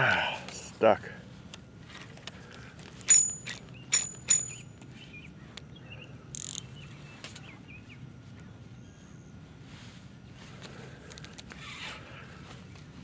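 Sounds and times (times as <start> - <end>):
fishing reel clicks: 6.4 - 6.6.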